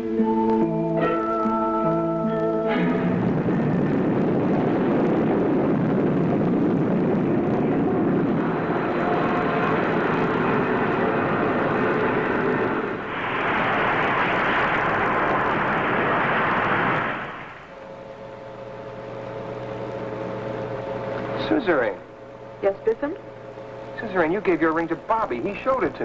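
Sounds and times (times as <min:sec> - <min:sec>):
rocket lift-off rushing: 0:02.7 - 0:21.5.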